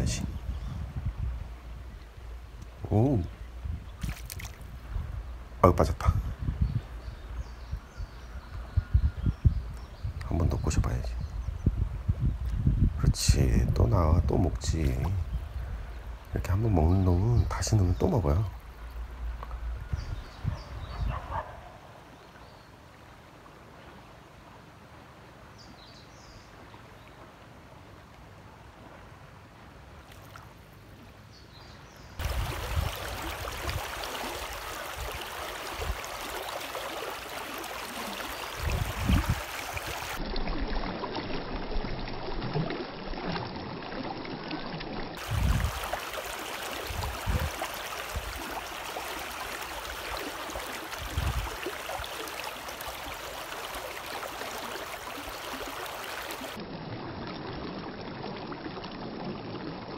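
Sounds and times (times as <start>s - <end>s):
river water over rocks: 32.1s - 59.9s.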